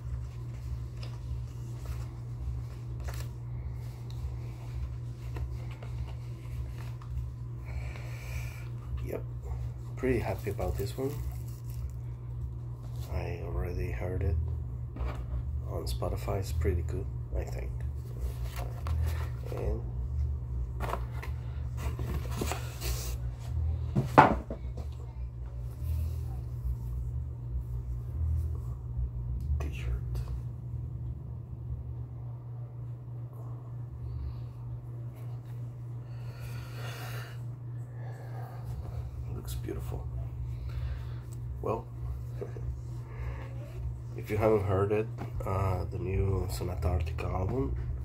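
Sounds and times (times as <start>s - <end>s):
steady low hum: 0.0s - 48.0s
paper pages rustling: 0.2s - 7.2s.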